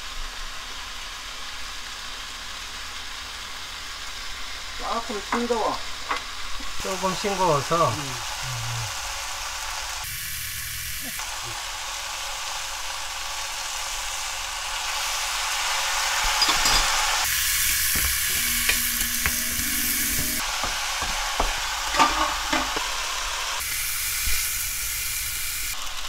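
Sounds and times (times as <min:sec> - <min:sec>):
vegetables sizzling in frying pan: 0:00.0 - 0:26.0.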